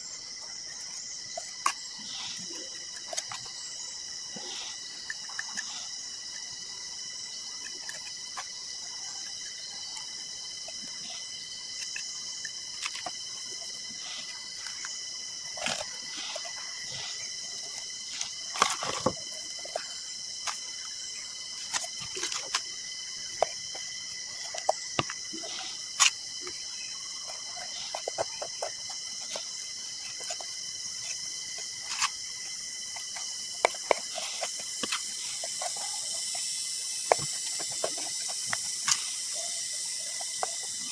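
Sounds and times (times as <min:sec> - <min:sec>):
insects chorus: 0:00.0 - 0:40.9
stick scraping in flowerpot: 0:11.7 - 0:40.9.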